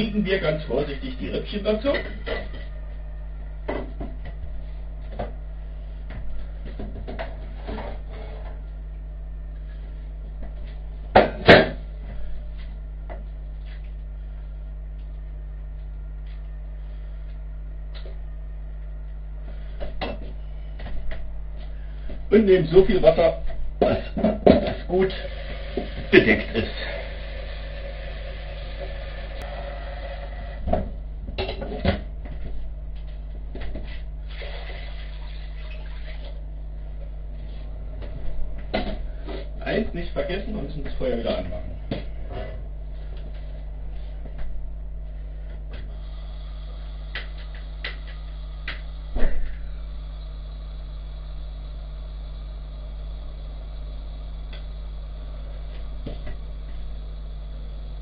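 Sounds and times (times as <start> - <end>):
steady low hum: 0.0 - 58.0
water poured into a pot: 34.3 - 36.2.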